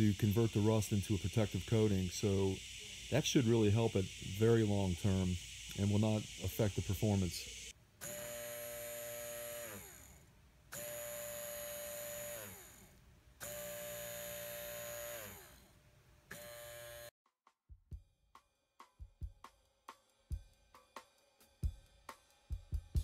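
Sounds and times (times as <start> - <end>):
small electric motor whining: 0.0 - 17.1
music drum beats: 17.6 - 23.0.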